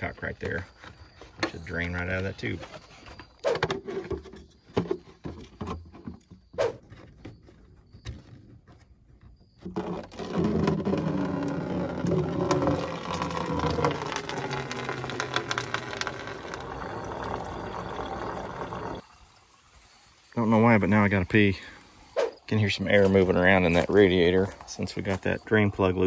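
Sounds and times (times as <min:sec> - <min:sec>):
coolant splashing into jug: 0:09.8 - 0:21.4.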